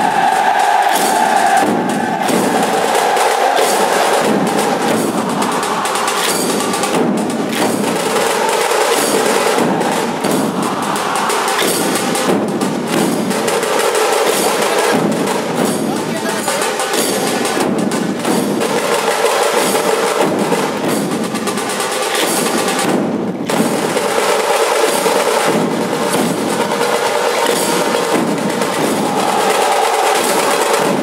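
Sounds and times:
barrel drums and snare drums: 0:00.0 - 0:31.0
hand cymbals clashing: 0:07.6 - 0:12.4.

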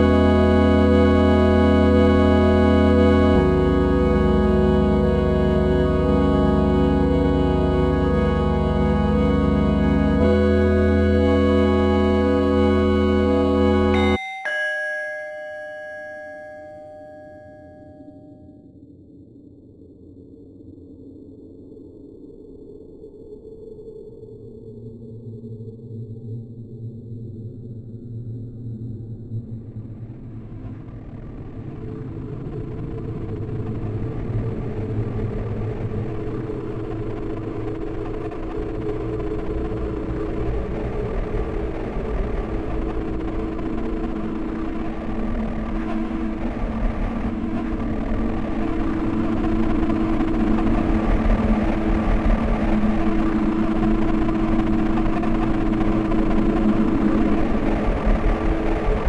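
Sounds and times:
low rumbling drone: 0:00.0 - 0:14.2, 0:27.0 - 0:59.0
low two-note hum: 0:00.0 - 0:18.2
steady hum: 0:34.6 - 0:59.0.

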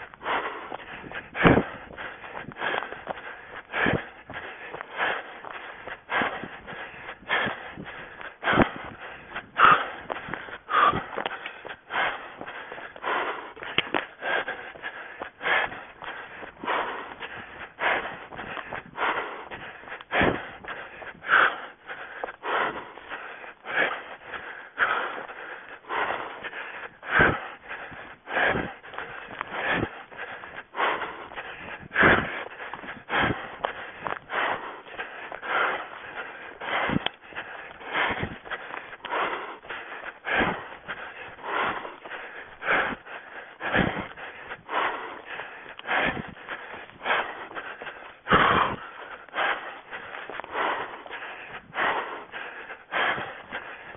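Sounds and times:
footsteps on forest floor: 0:00.0 - 0:23.3, 0:44.1 - 0:53.7
runner breathing heavily: 0:00.0 - 0:53.9.

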